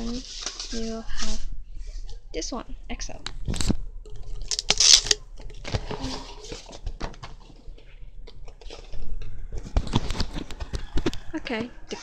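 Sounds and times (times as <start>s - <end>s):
paper poster rustling: 0.0s - 2.1s.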